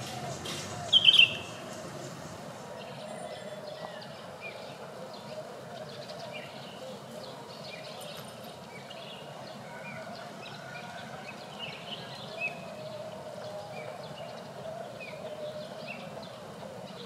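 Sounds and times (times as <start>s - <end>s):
outdoor village ambience: 0.0s - 17.0s.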